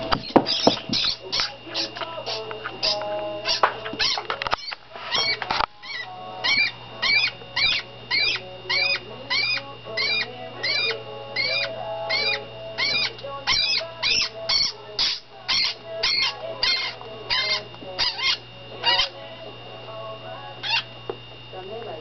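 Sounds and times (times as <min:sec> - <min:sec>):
rat squeaking in distress: 0:00.2 - 0:19.2, 0:20.6 - 0:20.9.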